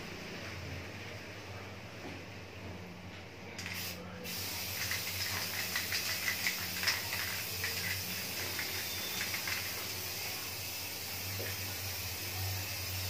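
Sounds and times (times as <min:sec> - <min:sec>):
aerosol spray can hissing: 0:03.6 - 0:13.0.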